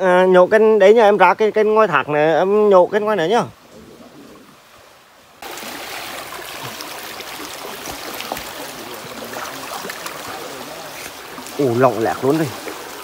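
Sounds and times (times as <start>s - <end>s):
stream water trickling: 0.1s - 13.0s.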